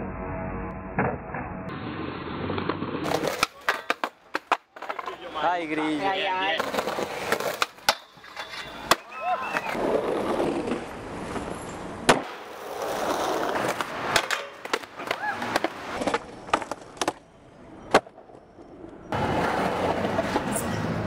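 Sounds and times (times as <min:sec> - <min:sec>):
skateboard wheels rolling on concrete: 0:01.0 - 0:21.0
skateboard clacks: 0:02.6 - 0:05.3, 0:12.0 - 0:17.2.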